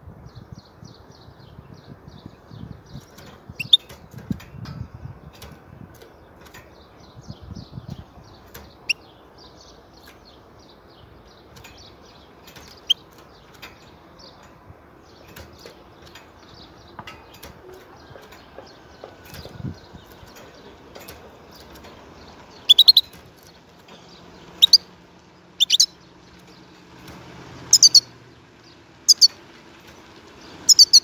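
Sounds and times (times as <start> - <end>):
goldfinch twittering: 2.9 - 4.0, 21.5 - 23.2, 24.2 - 24.9, 25.6 - 26.5, 27.7 - 29.4, 30.4 - 31.0.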